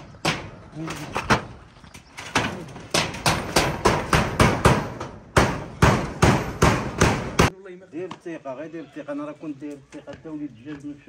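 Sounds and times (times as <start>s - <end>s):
hammer striking metal roofing sheet: 0.0s - 1.5s, 2.3s - 7.5s.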